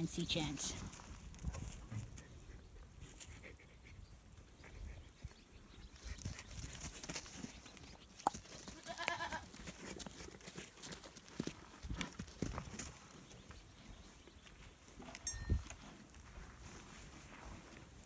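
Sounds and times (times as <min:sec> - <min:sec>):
goat bleating: 0:08.7 - 0:09.5
faint scuffling on straw: 0:15.8 - 0:18.0.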